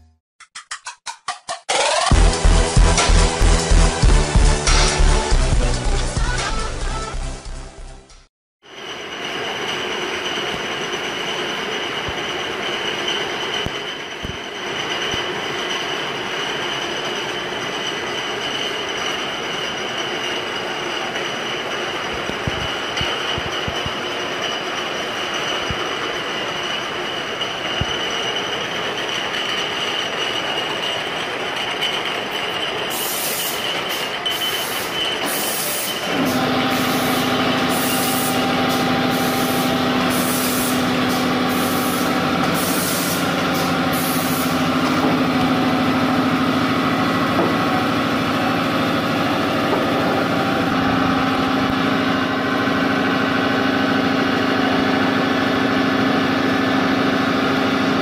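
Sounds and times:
machine and conveyor humming: 1.7 - 58.0
high hiss bursts: 39.2 - 40.9.

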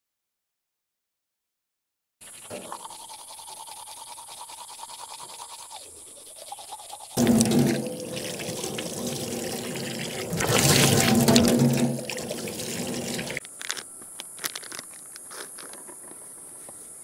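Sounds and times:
toothbrush scrubbing teeth: 2.2 - 13.4
tap water running into steel sink: 7.2 - 13.4.

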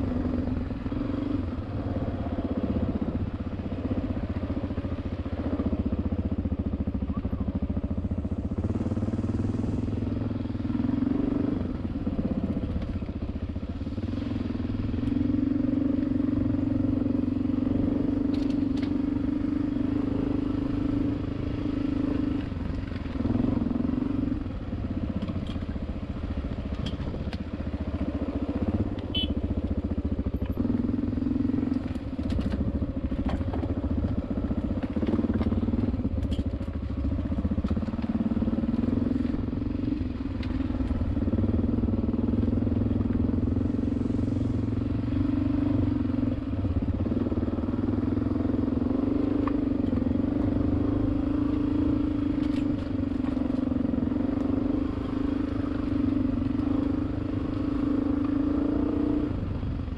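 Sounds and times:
vehicle engine running: 0.0 - 59.9.

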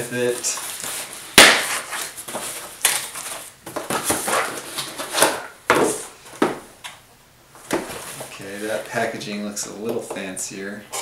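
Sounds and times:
cardboard tearing: 0.8 - 5.5.

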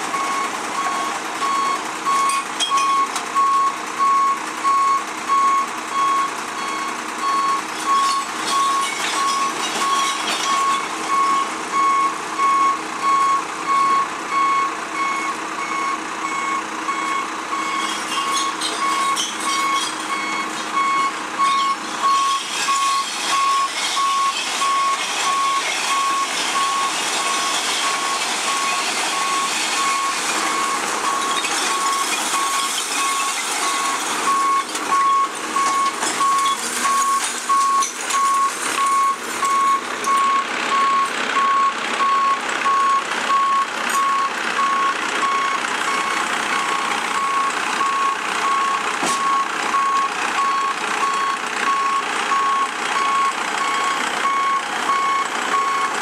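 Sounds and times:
truck warning beeper: 0.1 - 56.0
bottles and containers clattering: 7.7 - 11.1.

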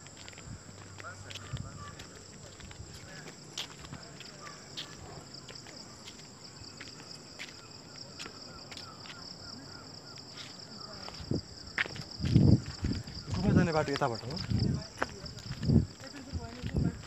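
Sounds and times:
footsteps on stone path: 0.0 - 17.0
insects chirring: 0.0 - 17.0.

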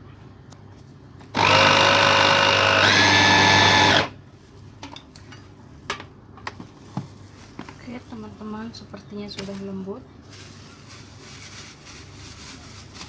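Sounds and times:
electric food chopper grinding: 1.3 - 4.2.

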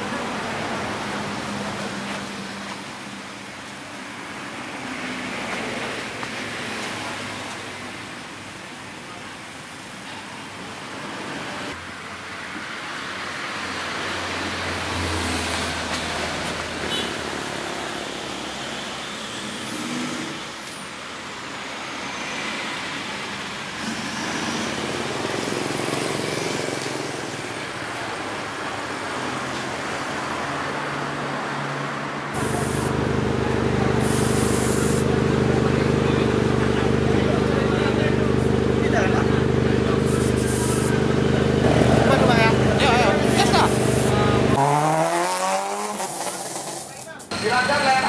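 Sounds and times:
loud steady engine note: 32.3 - 46.1
car engines running: 32.3 - 48.0.

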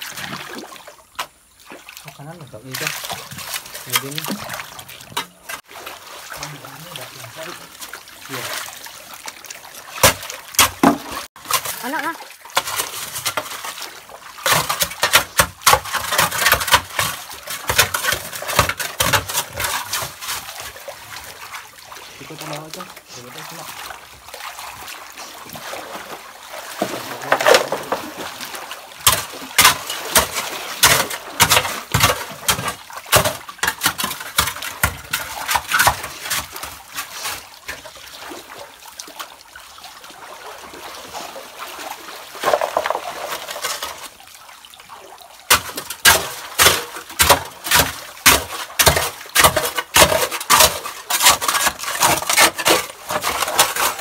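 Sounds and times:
water splashing: 0.0 - 54.0
hoe chopping into wet gravel: 10.0 - 11.7, 14.4 - 20.5, 29.0 - 37.3, 45.5 - 54.0
stones scraping and clinking: 42.4 - 43.8.

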